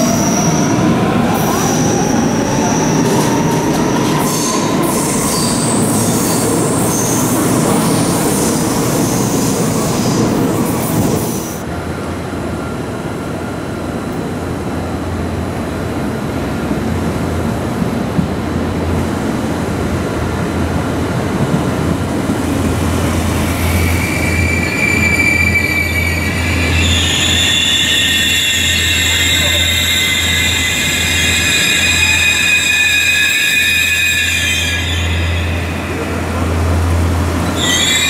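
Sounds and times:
railcar rolling with low hum: 0.0s - 38.0s
electric train wheel squeal: 23.4s - 36.2s, 37.4s - 38.0s
brake squeal: 23.7s - 36.1s, 37.4s - 38.0s.

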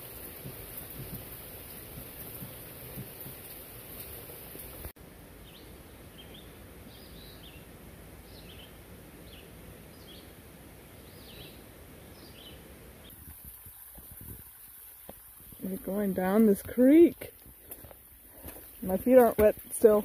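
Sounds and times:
rain falling through forest: 0.0s - 20.0s
bird chirping: 5.4s - 12.6s.

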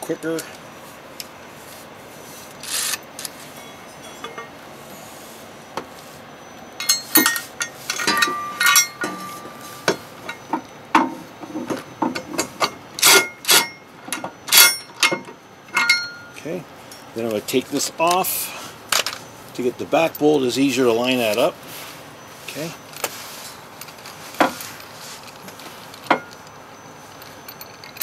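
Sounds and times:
metal clinks and knocks: 2.6s - 4.6s, 6.8s - 17.2s, 22.8s - 28.0s.

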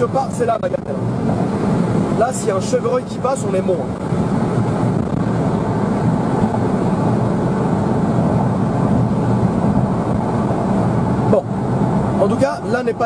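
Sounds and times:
car engine drone from inside cabin: 0.0s - 13.0s.

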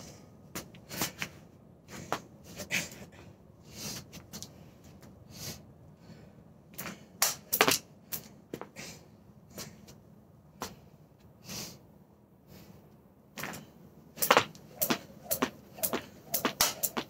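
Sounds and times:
jump rope handles clattering: 6.8s - 7.8s, 14.2s - 17.0s
rope slapping wooden deck: 14.2s - 17.0s.

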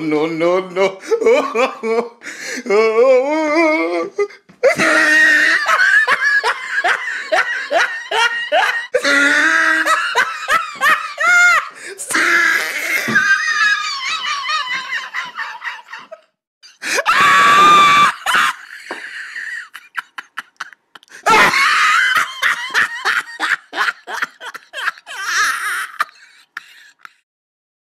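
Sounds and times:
person screaming: 2.7s - 5.8s, 8.6s - 10.2s, 11.2s - 14.6s, 16.9s - 18.7s, 21.2s - 26.2s.

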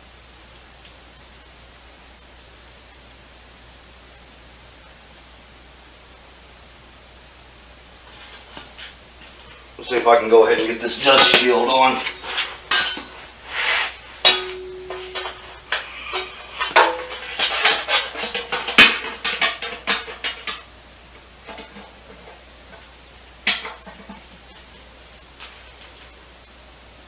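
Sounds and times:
metal clinking and scraping: 10.5s - 20.7s, 21.4s - 26.3s.

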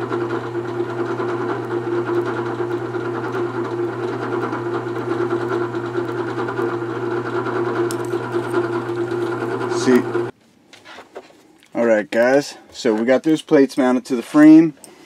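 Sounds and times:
drill press motor humming: 0.0s - 10.3s.

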